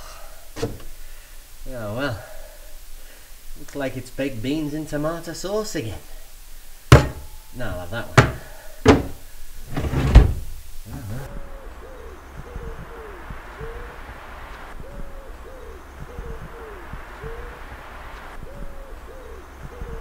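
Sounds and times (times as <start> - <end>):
owl-like hooting: 10.8 - 20.0.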